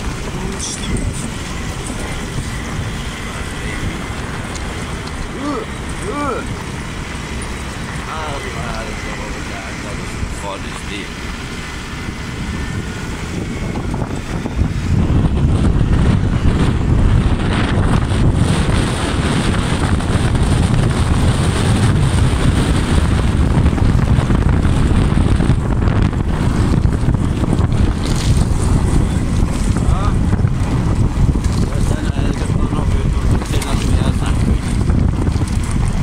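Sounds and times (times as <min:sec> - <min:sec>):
wind buffeting microphone: 0:00.0 - 0:36.0.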